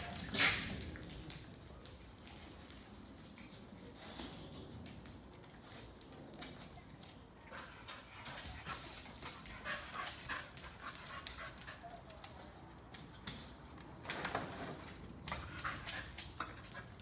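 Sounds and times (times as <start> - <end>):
dog panting and whimpering: 6.7 - 12.5, 15.3 - 17.0.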